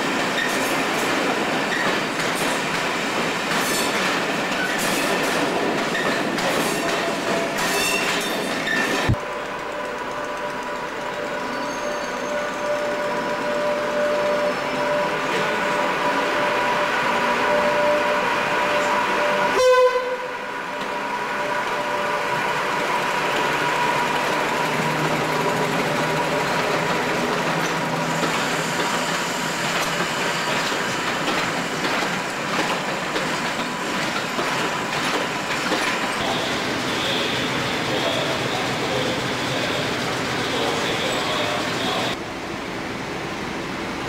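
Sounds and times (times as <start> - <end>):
electric locomotive whine: 0.0 - 44.0
diesel locomotive running: 1.0 - 44.0
loud train horn blast: 16.7 - 20.6.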